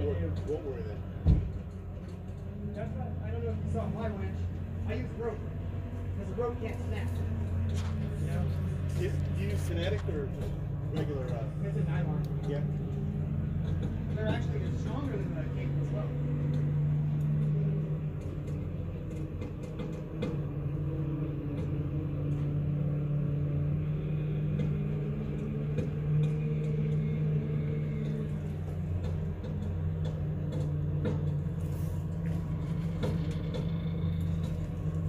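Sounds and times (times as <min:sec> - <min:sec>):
diesel engine droning: 0:00.0 - 0:35.0
faint clicks and rattles: 0:00.0 - 0:35.0.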